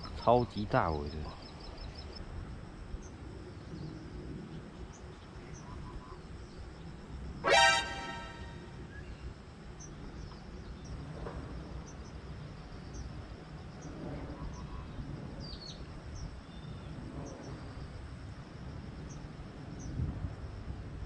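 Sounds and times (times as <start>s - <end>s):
faint high whine: 0.1s - 9.9s
short high chirps: 7.4s - 8.8s.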